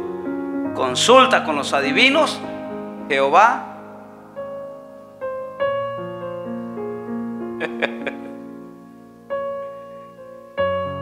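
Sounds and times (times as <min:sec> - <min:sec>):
keyboard playing soft chords: 0:00.0 - 0:11.0
descending bass line: 0:00.7 - 0:04.9.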